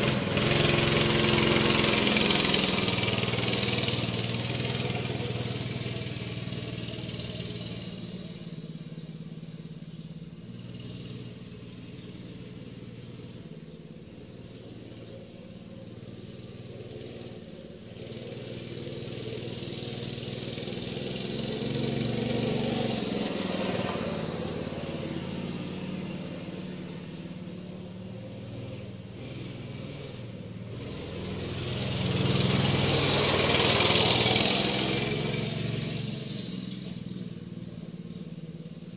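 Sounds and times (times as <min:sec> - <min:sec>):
mini bike engine running: 0:00.0 - 0:09.2, 0:09.8 - 0:26.0, 0:29.1 - 0:38.9.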